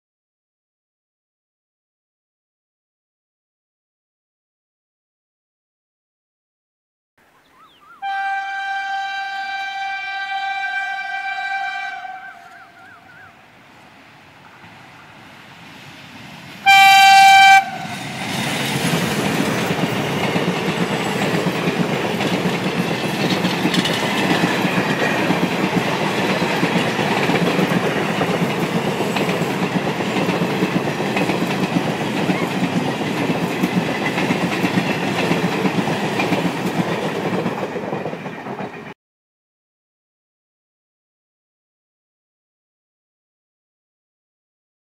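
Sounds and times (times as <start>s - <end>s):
diesel locomotive horn blast: 8.0s - 12.9s, 16.6s - 18.3s
train wheels clattering over rail joints: 18.0s - 38.9s.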